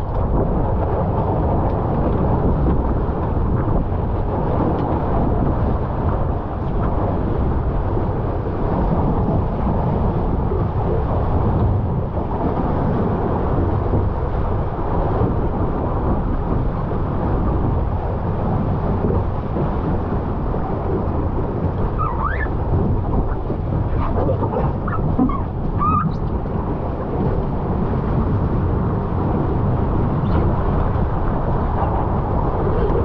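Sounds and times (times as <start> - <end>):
water rushing past a boat: 0.0 - 33.0
wind buffeting the microphone: 0.0 - 33.0
short rising squeak: 21.9 - 22.5, 24.9 - 26.3.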